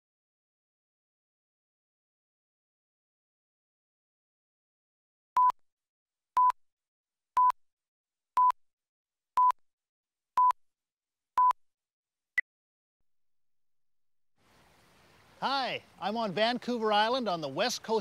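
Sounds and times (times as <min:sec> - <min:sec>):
short countdown beeps: 0:07.4 - 0:07.6, 0:09.4 - 0:09.6, 0:10.4 - 0:10.6, 0:11.4 - 0:11.6.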